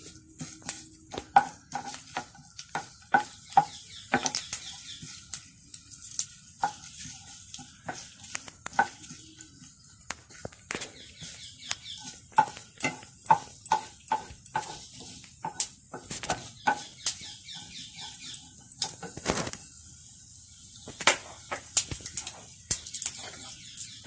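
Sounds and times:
seeds popping in hot oil: 0:00.0 - 0:24.0
wooden spatula stirring pan: 0:00.0 - 0:24.0.

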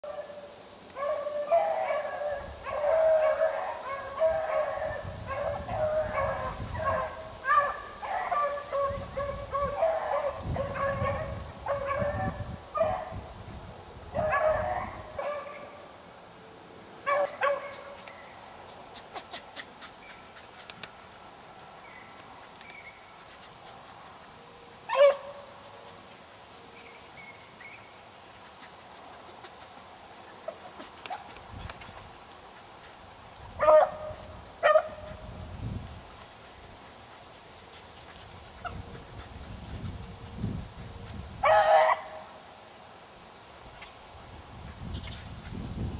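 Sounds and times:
hounds baying and barking: 0:00.0 - 0:13.2, 0:14.1 - 0:15.8, 0:17.0 - 0:35.4, 0:41.4 - 0:42.3.

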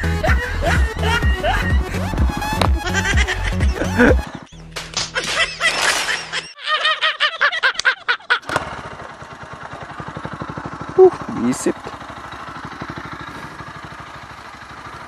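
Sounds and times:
men laughing: 0:00.0 - 0:08.6
motorcycle engine idling: 0:08.4 - 0:15.0.

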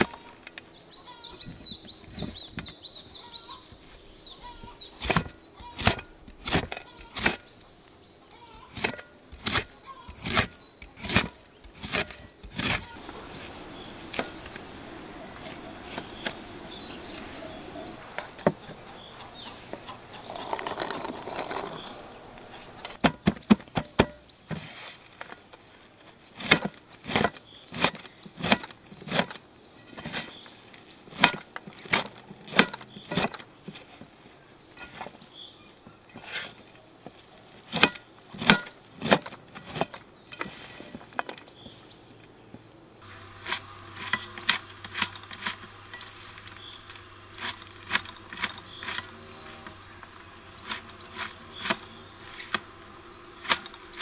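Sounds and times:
knife chopping on metal tray: 0:05.0 - 0:07.4, 0:08.7 - 0:12.9, 0:23.0 - 0:24.7, 0:31.2 - 0:33.4.

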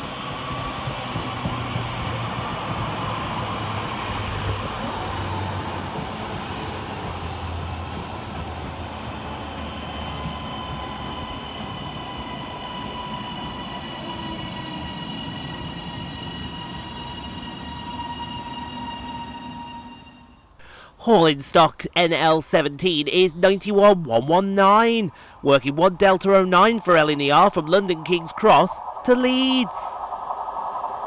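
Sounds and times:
train wheels rolling on rails: 0:00.0 - 0:20.1, 0:25.1 - 0:31.0
thin high whine: 0:09.7 - 0:20.6, 0:25.4 - 0:31.0.

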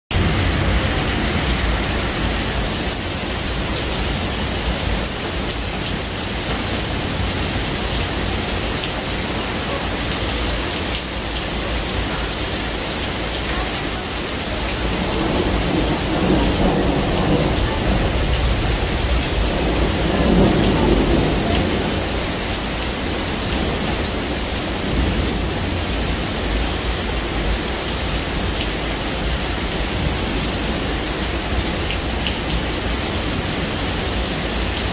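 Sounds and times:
steady rain falling: 0:00.1 - 0:34.9
low rumbles of thunder: 0:14.6 - 0:22.6.

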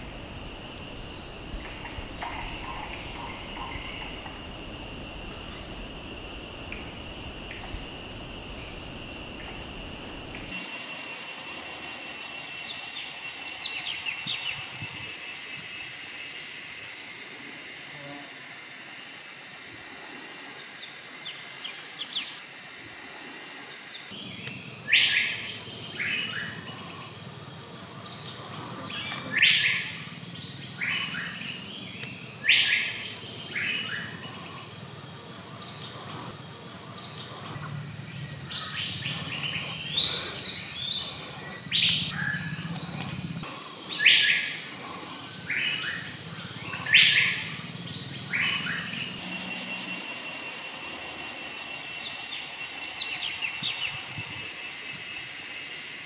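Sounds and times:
birds calling sharp notes: 0:00.0 - 0:10.6, 0:37.0 - 0:44.6
pulsing insect chorus: 0:00.0 - 0:56.0.

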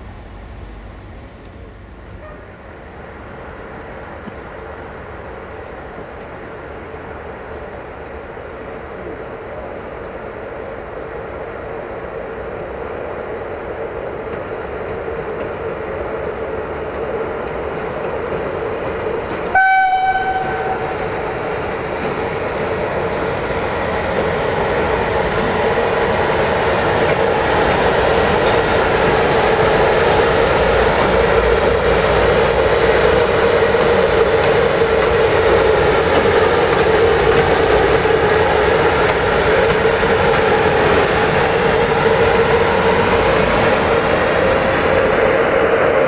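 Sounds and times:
locomotive hum and rolling: 0:00.0 - 0:46.0
locomotive horn blast: 0:19.5 - 0:21.0.

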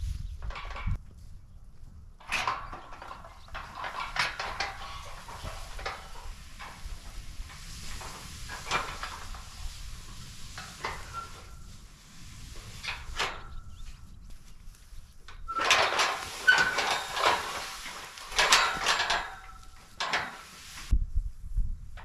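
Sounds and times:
steel panels clanking and rattling: 0:02.2 - 0:14.0, 0:15.2 - 0:20.9.

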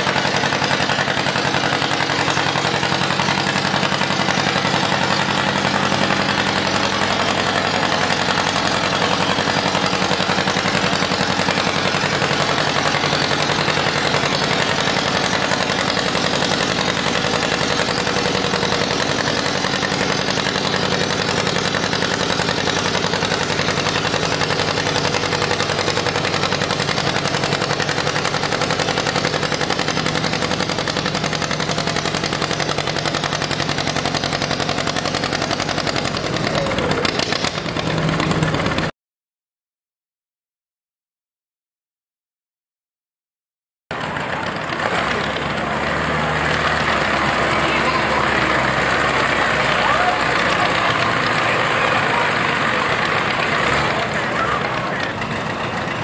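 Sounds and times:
tractor engine under load: 0:00.0 - 0:38.9, 0:43.9 - 0:56.0.

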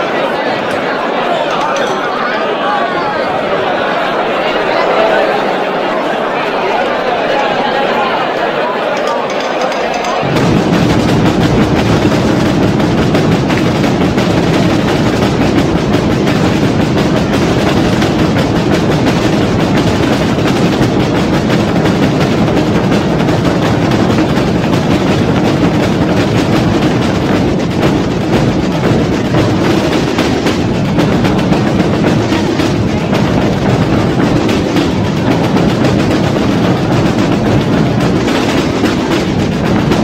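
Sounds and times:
snare and bass drums playing: 0:10.0 - 0:40.0.

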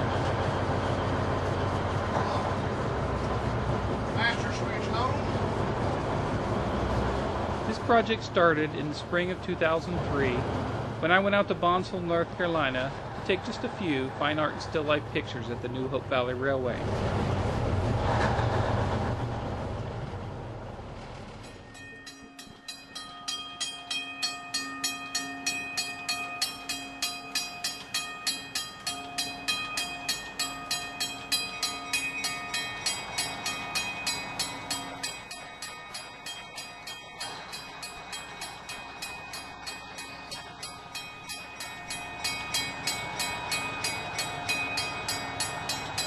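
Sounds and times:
train rumble: 0:00.0 - 0:46.0
railway bell ringing: 0:07.7 - 0:10.4, 0:11.0 - 0:16.6, 0:21.4 - 0:46.0.

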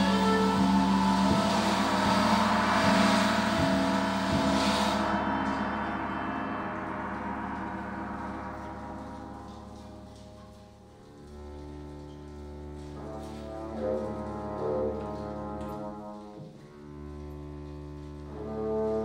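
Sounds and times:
orchestra holding a chord: 0:00.0 - 0:10.4.

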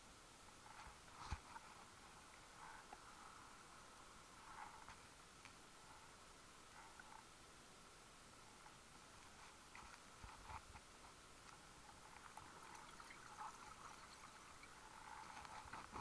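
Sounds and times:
soft gurgles: 0:11.9 - 0:16.0.

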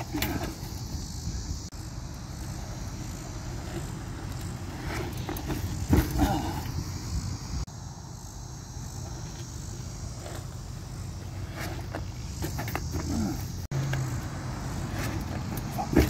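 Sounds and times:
bike tyres rolling on concrete: 0:00.0 - 0:16.0
bike landing knocks: 0:03.6 - 0:07.0, 0:14.9 - 0:16.0.

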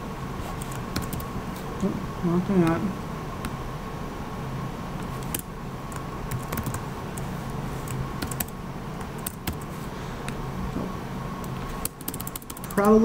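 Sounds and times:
faint hum: 0:00.0 - 0:13.0
keyboard typing: 0:00.6 - 0:01.3, 0:05.0 - 0:09.7, 0:11.4 - 0:13.0.

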